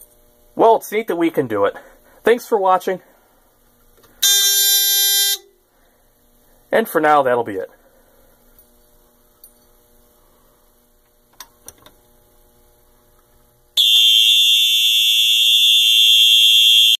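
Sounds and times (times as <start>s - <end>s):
fire alarm continuous tone: 4.2s - 5.6s, 13.8s - 17.0s.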